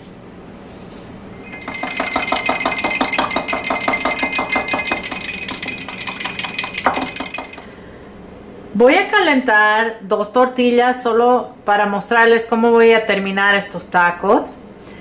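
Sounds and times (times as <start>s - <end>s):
whisk clinking against glass: 1.4s - 7.8s.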